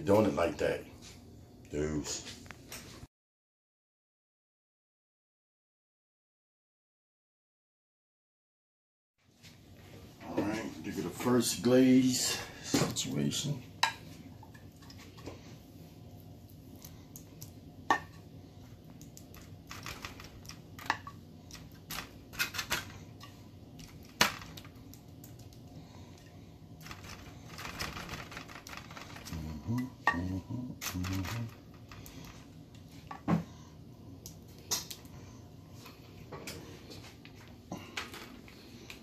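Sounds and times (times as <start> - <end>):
aluminium foil crinkling: 19.1 - 23.0, 26.8 - 29.6.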